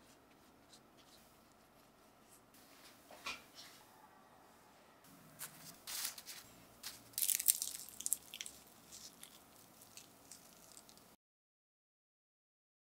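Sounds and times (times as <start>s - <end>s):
phyllo pastry crackling: 5.4s - 11.2s.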